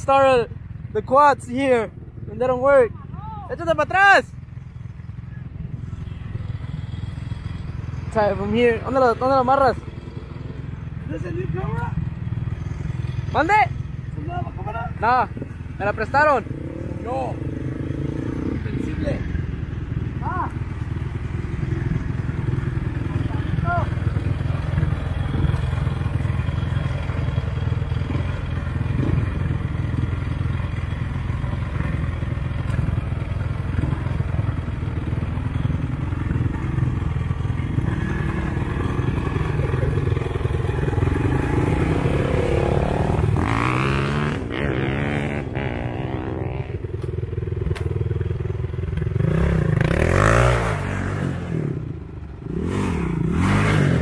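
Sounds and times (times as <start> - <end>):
vehicle engines running: 0.0 - 54.0
quad engine revving: 15.8 - 54.0.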